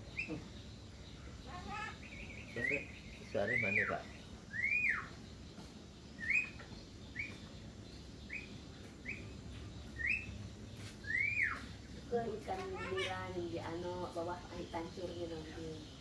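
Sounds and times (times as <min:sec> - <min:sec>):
bird whistling: 0:02.1 - 0:05.2, 0:06.2 - 0:07.5, 0:08.3 - 0:09.2, 0:10.0 - 0:10.4, 0:11.0 - 0:11.7.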